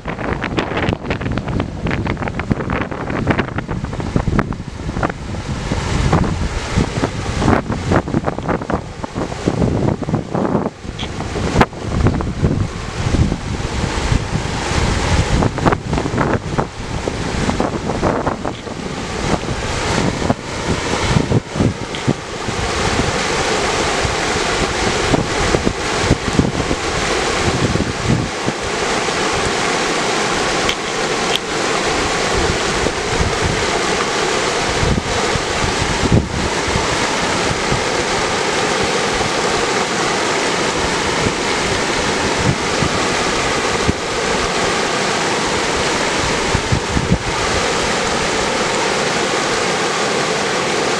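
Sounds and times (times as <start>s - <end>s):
wind buffeting microphone: 0.0s - 50.0s
river rushing over rocks: 0.0s - 50.9s.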